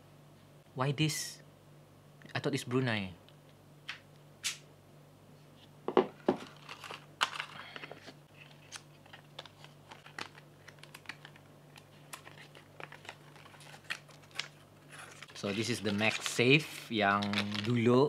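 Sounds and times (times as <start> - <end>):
faint low hum: 0.0 - 18.0
paper crinkling and rustling: 6.2 - 18.0.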